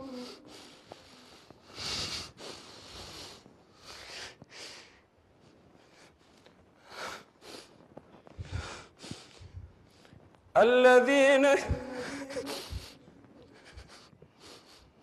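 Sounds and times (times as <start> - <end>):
man reciting: 0.0 - 0.5, 10.6 - 13.8
man sobbing and sniffing: 11.8 - 15.0.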